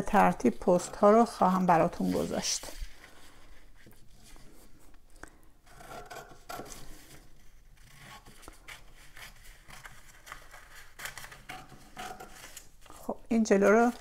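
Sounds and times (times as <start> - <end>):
paper rubbing on tabletop: 0.1 - 4.6.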